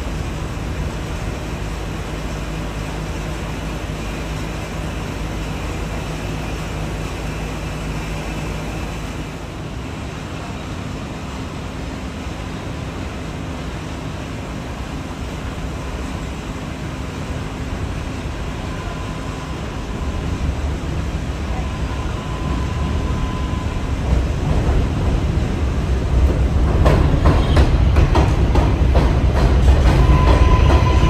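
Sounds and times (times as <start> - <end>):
steel wheels rumbling on rail: 0.0 - 31.0.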